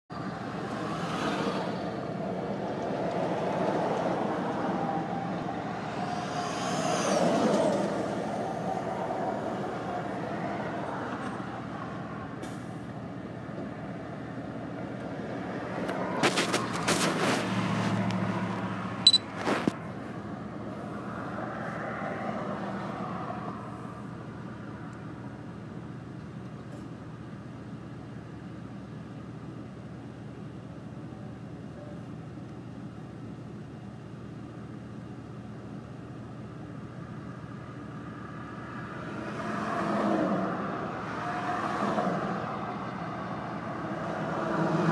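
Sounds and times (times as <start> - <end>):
cars and trucks passing: 0.1 - 28.3, 36.5 - 44.9.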